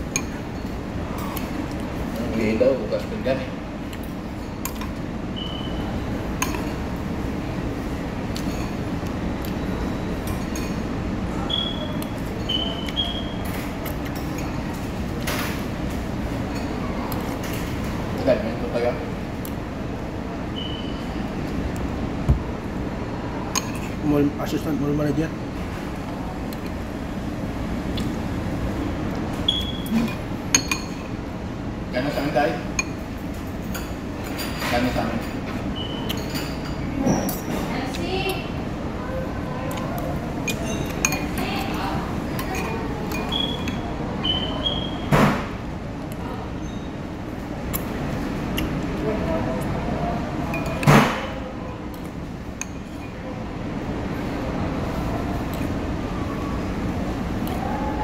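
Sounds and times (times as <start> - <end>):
low room hum: 0.0 - 58.0
cutlery clinking against bowl: 6.4 - 6.8, 8.3 - 8.8, 30.0 - 31.1, 36.1 - 37.6, 42.4 - 43.8
spoon and fork clinking on bowl: 30.1 - 31.1, 40.4 - 41.4, 42.4 - 43.8, 50.5 - 50.9.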